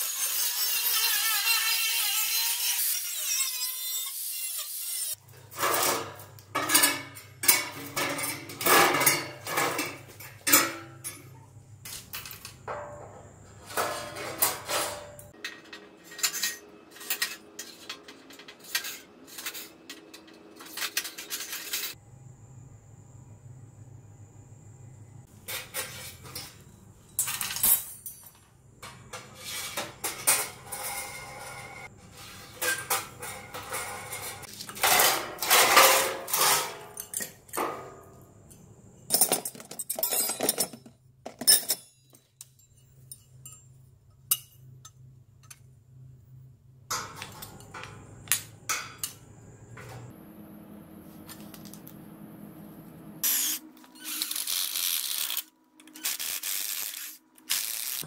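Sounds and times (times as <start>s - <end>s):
metal parts clinking and rattling: 13.7s - 22.0s, 25.8s - 28.5s, 39.1s - 43.6s.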